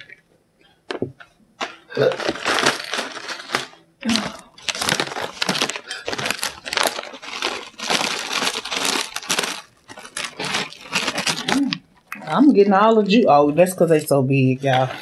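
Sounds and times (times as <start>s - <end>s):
fruit crisps rattling onto table: 1.6s - 11.8s
snack pouch crinkling: 2.0s - 12.1s.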